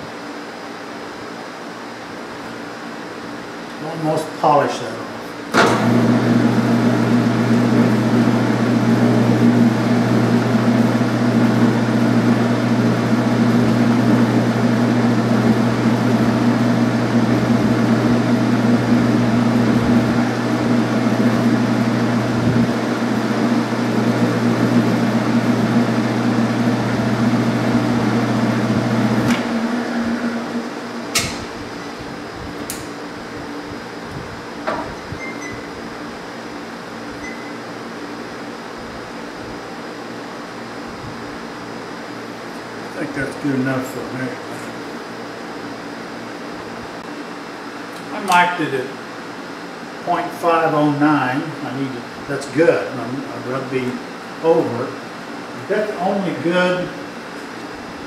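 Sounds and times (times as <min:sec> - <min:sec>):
lathe motor hum: 0:02.5 - 0:58.0.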